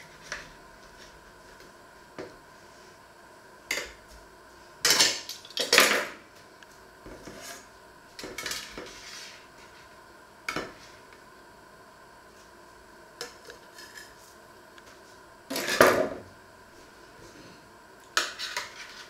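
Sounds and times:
spatula and knife scraping metal tray: 18.2s - 19.0s.

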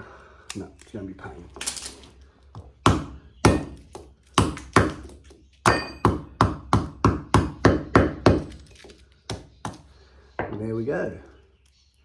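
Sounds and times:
hammer striking metal: 5.7s - 6.6s.

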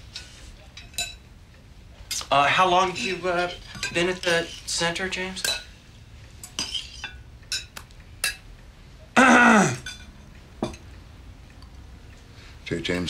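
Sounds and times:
cutlery clinking on plates: 0.0s - 1.3s, 2.1s - 5.8s, 6.4s - 8.5s, 9.8s - 10.9s.

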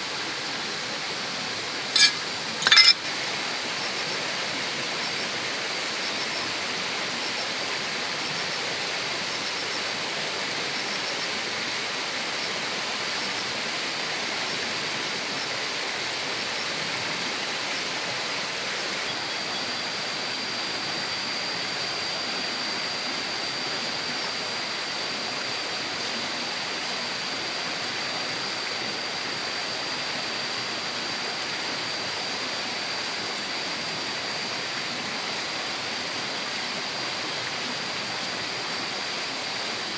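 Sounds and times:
thin high whine: 1.8s - 3.1s, 17.7s - 39.9s
running water rushing: 16.8s - 39.9s.

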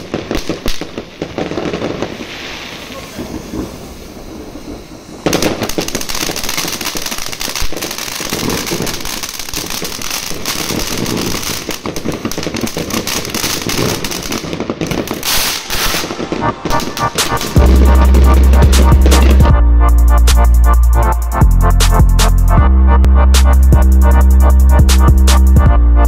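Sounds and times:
firework fountain hissing and crackling: 0.0s - 19.4s.

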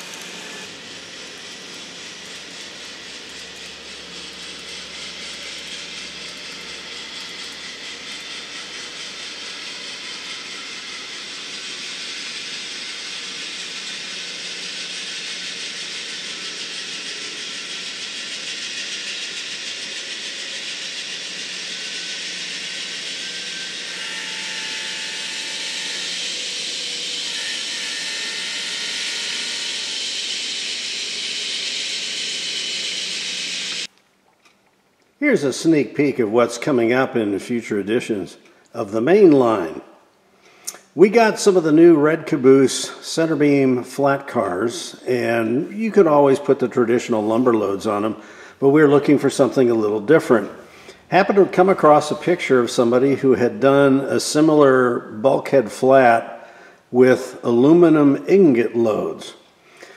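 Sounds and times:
model train running: 0.0s - 33.9s.

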